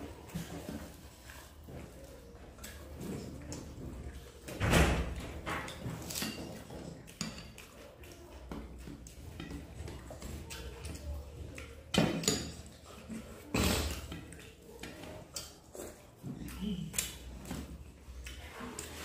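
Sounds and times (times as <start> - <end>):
chewing and mouth sounds: 0.0 - 19.0
fingers mixing food on steel plate: 5.1 - 19.0.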